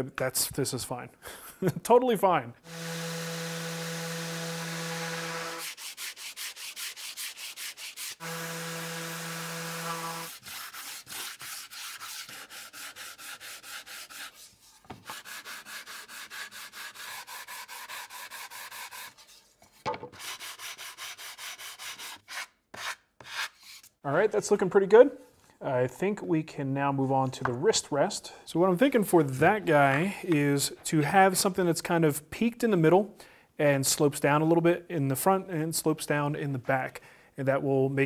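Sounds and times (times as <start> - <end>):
orbital sander humming: 2.7 - 5.7, 8.1 - 10.4
hand sanding strokes on wood: 2.7 - 19.5, 20.2 - 23.8.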